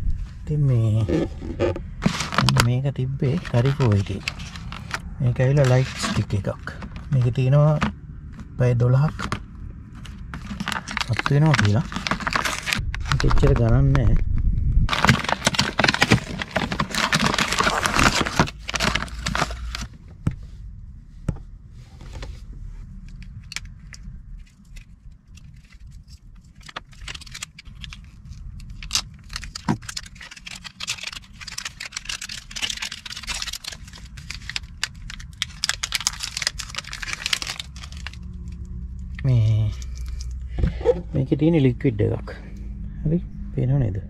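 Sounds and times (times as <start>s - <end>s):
steady low rumble: 0.0s - 44.0s
plastic packet crinkling: 1.2s - 7.9s, 9.0s - 13.8s, 14.9s - 19.9s, 24.7s - 40.4s.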